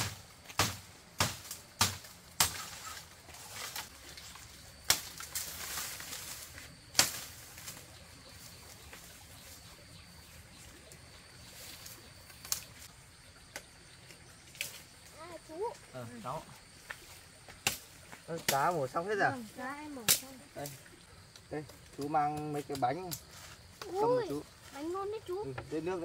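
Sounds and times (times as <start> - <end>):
machete chopping bamboo: 0.0 - 3.0, 4.9 - 5.5, 6.9 - 7.4, 17.6 - 17.8
bamboo leaves rustling: 0.0 - 26.0.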